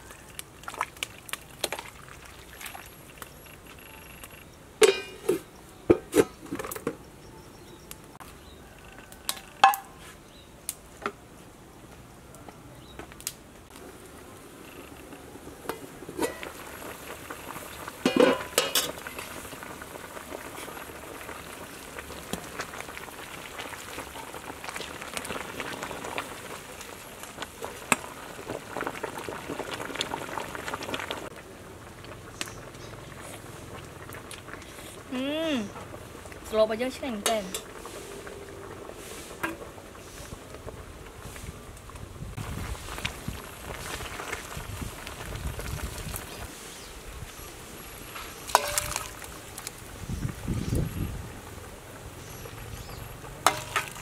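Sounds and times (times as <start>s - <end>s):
soup bubbling: 0.0s - 6.5s, 13.7s - 54.0s
lid and ladle clanking on pot: 4.8s - 7.0s, 9.3s - 10.0s, 15.7s - 16.6s, 18.0s - 19.3s, 48.5s - 49.2s, 53.4s - 54.0s
ladle stirring soup: 53.4s - 54.0s.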